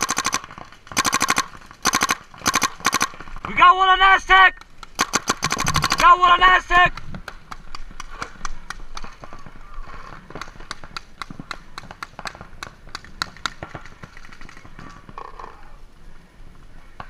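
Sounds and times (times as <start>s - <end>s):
paintball markers firing: 0.0s - 3.3s, 4.6s - 6.1s, 10.2s - 15.0s.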